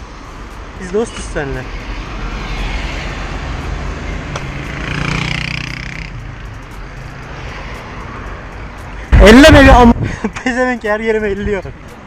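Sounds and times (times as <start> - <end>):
steady low traffic rumble: 0.0 - 12.0
motor vehicle passing: 1.4 - 9.4.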